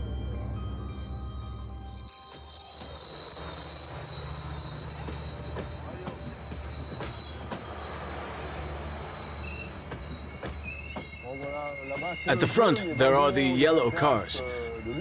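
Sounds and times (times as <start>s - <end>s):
train cars rolling past: 0.0s - 15.0s
high wheel squeal: 0.8s - 15.0s.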